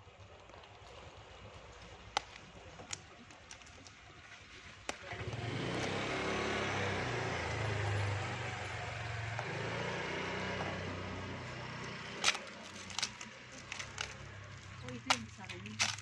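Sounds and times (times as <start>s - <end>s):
vehicle engine running: 4.0s - 16.0s.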